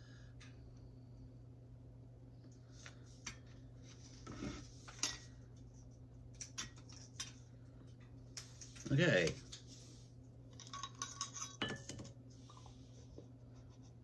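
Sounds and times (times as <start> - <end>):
steady low hum: 0.0 - 14.0
kitchenware clinking: 10.5 - 12.2.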